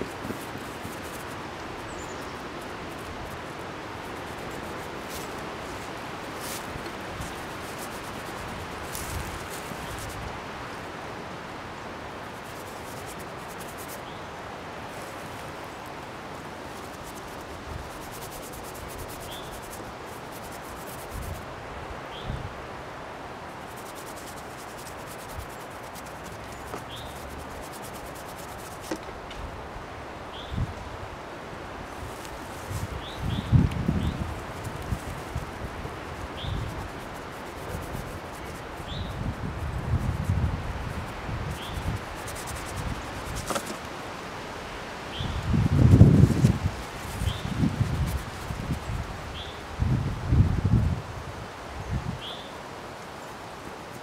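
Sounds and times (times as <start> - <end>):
hand smearing paint on canvas: 0.0 - 10.2, 12.4 - 14.0, 16.7 - 21.4, 23.6 - 29.0, 32.0 - 43.9, 45.7 - 48.9
rustling outdoor background noise: 0.0 - 54.0.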